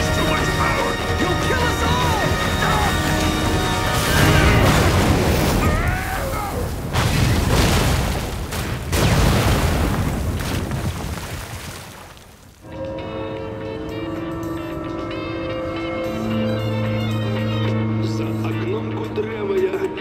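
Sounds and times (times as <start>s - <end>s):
explosion booms with deep rumble: 3.9s - 12.1s.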